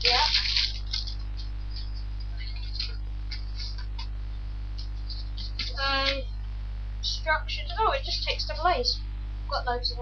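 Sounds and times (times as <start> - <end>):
packaging rustling and crinkling: 0.0 - 1.8
low electrical hum: 0.0 - 10.0.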